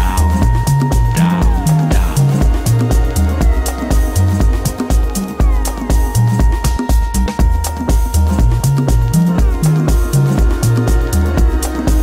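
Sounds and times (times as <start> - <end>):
electronic music with beat: 0.0 - 12.0.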